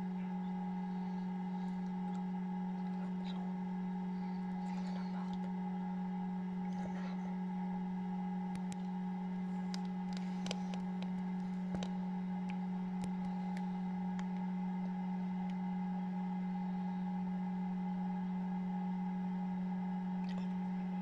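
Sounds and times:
fan humming: 0.0s - 21.0s
faint clicks: 9.6s - 15.6s.

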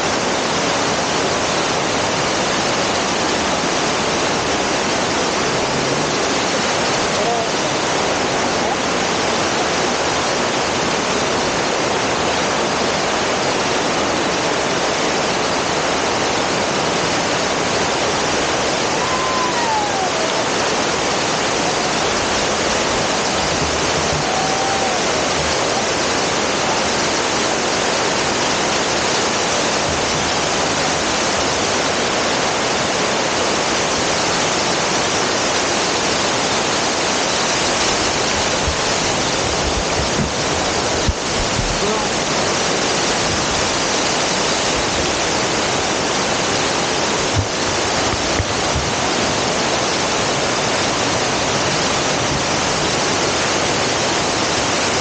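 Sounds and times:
water crashing onto rocks: 0.0s - 55.0s.

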